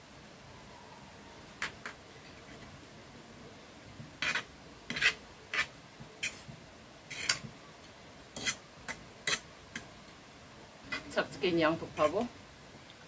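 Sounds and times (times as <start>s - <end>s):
forks scraping a plate: 4.2s - 6.5s, 7.1s - 7.4s, 8.4s - 8.6s.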